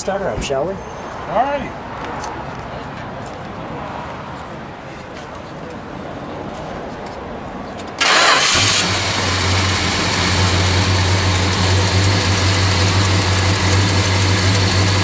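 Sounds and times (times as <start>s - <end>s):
car engine starting and idling: 8.0s - 15.0s.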